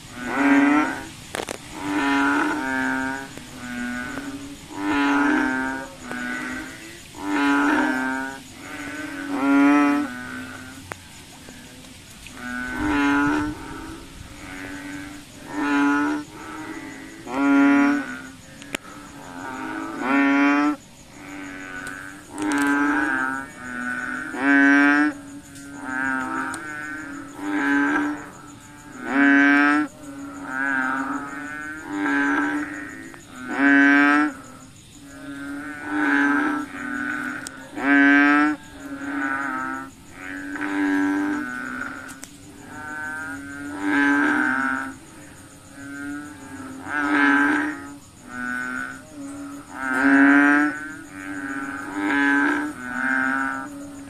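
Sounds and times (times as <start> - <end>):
frogs calling: 0.0 - 54.0.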